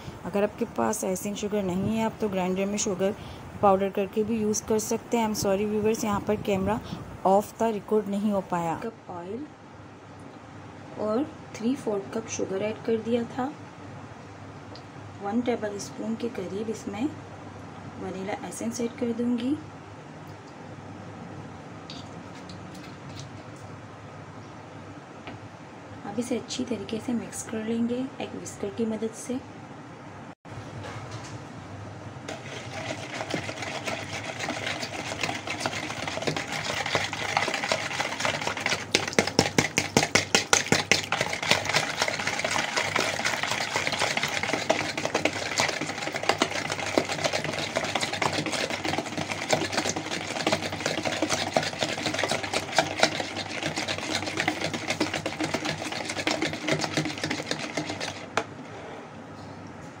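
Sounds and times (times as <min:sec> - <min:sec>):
whisk whirring in batter: 0:32.3 - 0:58.5.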